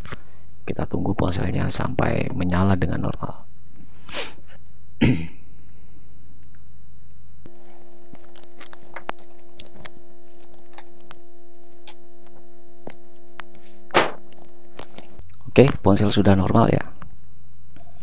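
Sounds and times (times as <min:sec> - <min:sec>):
electrical hum: 0:00.0 - 0:18.0
short breathy burst: 0:03.9 - 0:04.6.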